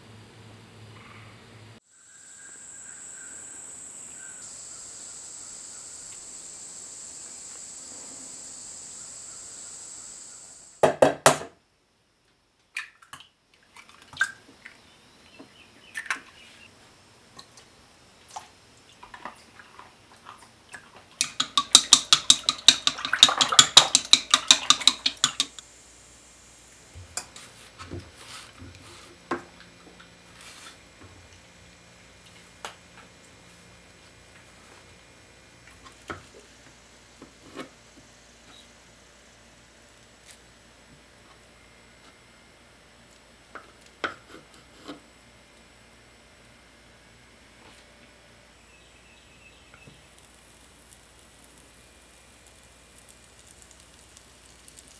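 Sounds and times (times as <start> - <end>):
insects droning: 1.0 - 10.8, 14.8 - 43.5, 45.2 - 54.9
utensil beating eggs in bowl: 19.7 - 25.6
sharp clicks: 23.6 - 25.6.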